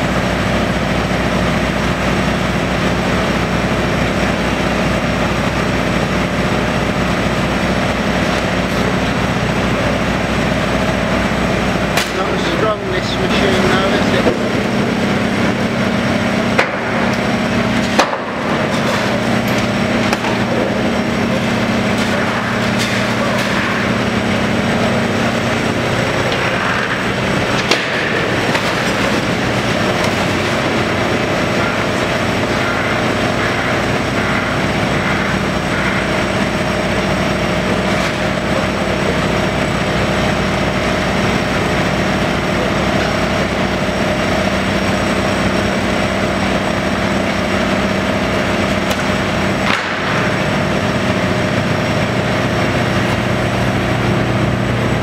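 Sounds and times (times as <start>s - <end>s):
excavator diesel engine running: 0.0s - 55.0s
walls crunching and clattering: 16.5s - 40.1s.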